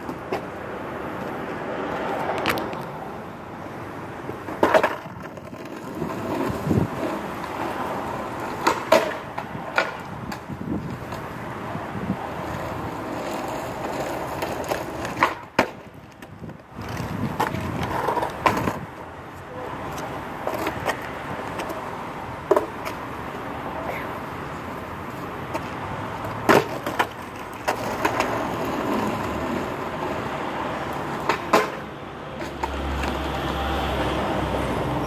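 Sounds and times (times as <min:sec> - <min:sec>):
skateboard clacking on road: 0:00.0 - 0:35.0
skateboard wheels rolling on asphalt: 0:00.0 - 0:35.0.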